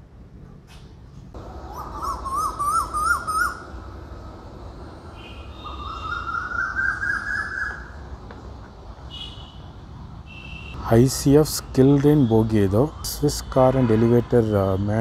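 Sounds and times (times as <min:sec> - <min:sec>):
bird repeating rising call: 0:01.4 - 0:03.8, 0:05.2 - 0:08.0.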